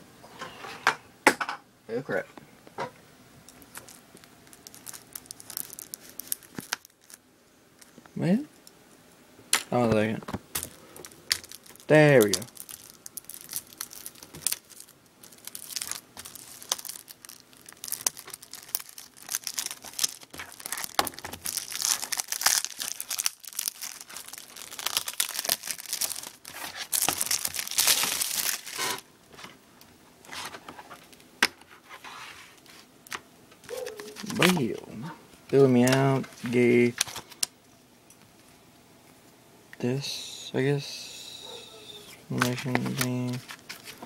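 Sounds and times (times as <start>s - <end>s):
plastic wrap crinkling: 3.5s - 8.0s, 10.5s - 29.5s, 32.6s - 34.8s, 42.3s - 44.0s.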